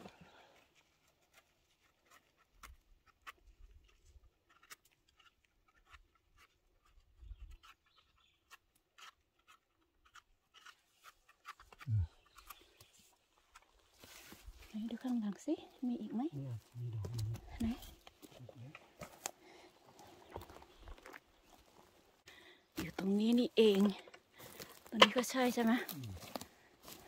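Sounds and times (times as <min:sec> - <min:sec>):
person grunting: 0:11.9 - 0:12.1
rustling in forest litter: 0:12.4 - 0:27.0.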